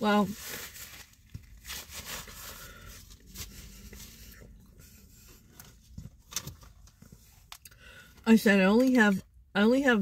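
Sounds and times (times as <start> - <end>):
plastic cup handling clicks and rustles: 5.5 - 7.7.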